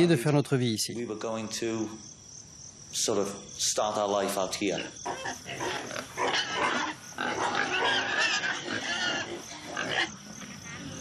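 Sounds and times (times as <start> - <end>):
pigs squealing: 4.6 - 11.0.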